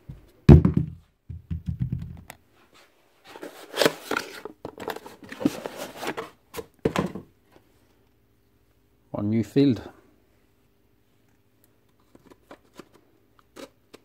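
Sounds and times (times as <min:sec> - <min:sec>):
thud on workbench: 0:00.5 - 0:02.1
cardboard crinkling and scraping: 0:03.2 - 0:06.4.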